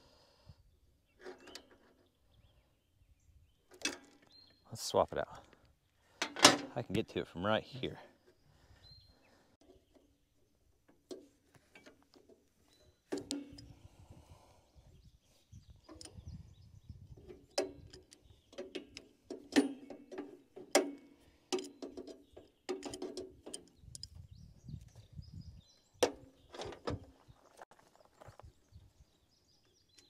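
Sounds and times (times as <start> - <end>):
hand tools clanking on metal: 6.1 - 7.0, 11.0 - 13.8, 17.2 - 24.2.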